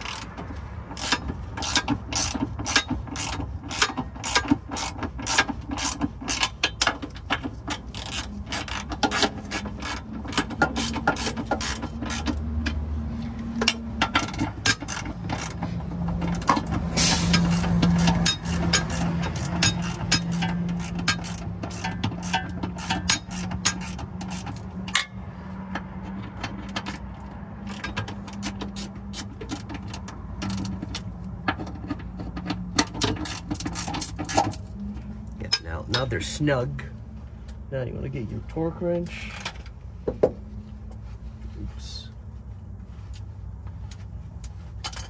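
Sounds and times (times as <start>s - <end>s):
hand ratchet clicking: 0.0s - 12.8s, 13.6s - 25.1s, 26.5s - 34.6s.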